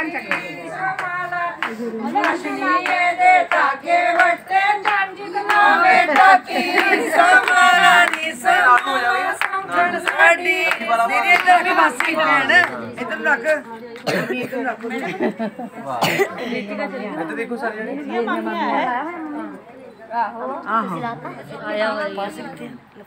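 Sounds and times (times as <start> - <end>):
group of voices singing: 0.0 - 14.2
hand claps: 0.2 - 12.8.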